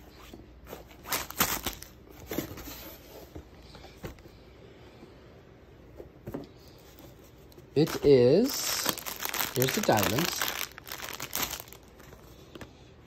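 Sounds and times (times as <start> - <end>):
packaging rustling and scraping: 0.7 - 3.3, 7.8 - 12.4.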